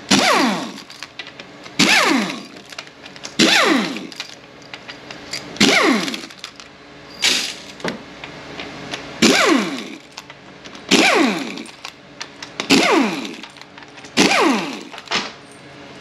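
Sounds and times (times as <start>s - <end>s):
power tool whining: 0.0s - 1.1s, 1.8s - 4.4s, 5.6s - 6.6s, 9.2s - 10.2s, 10.8s - 12.0s, 12.6s - 15.2s.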